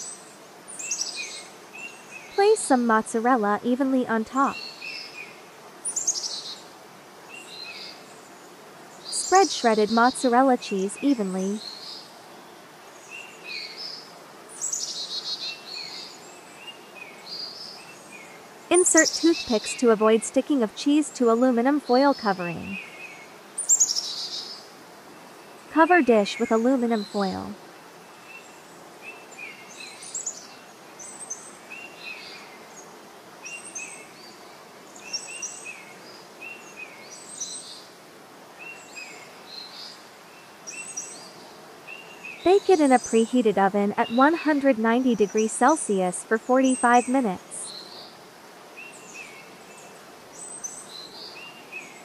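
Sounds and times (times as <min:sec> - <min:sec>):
faint steady hiss: 0:00.0 - 0:52.0
birds singing: 0:04.4 - 0:06.6, 0:13.0 - 0:20.0, 0:21.4 - 0:37.8
birds chirping: 0:09.1 - 0:11.9, 0:17.0 - 0:24.4, 0:25.8 - 0:27.6, 0:41.9 - 0:48.0.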